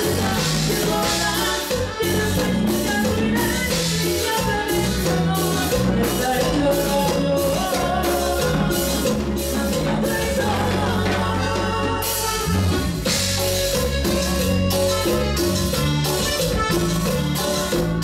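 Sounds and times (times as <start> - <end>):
woman singing: 0.0 - 12.8
live latin band playing: 0.0 - 18.0.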